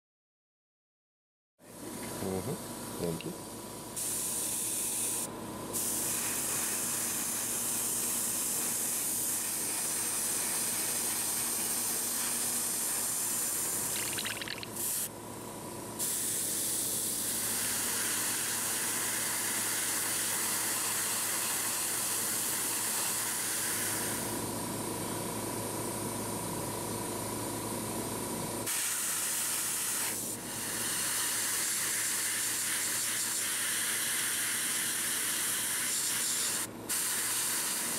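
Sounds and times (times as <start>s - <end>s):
airbrush spraying hiss: 4.0s - 14.2s, 16.0s - 24.3s, 28.7s - 37.9s.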